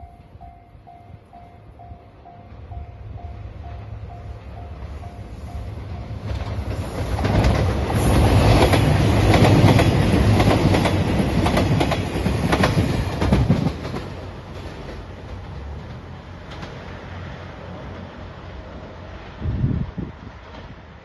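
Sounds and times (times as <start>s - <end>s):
diesel train passing: 0.0s - 21.0s
wheels clacking over rail joints: 4.3s - 18.0s.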